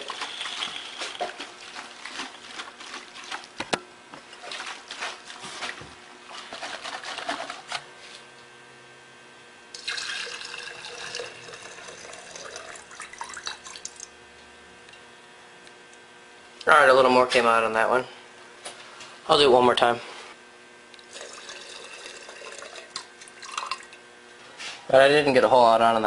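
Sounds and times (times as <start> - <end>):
gasoline sloshing in plastic tank: 0.0 - 7.9
gasoline pouring into glass jar: 9.7 - 14.0, 21.1 - 24.0.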